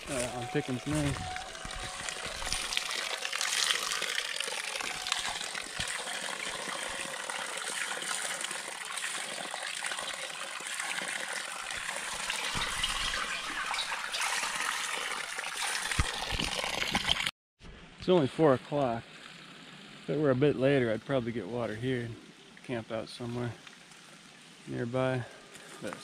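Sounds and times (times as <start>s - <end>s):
water gushing: 0.0s - 17.3s.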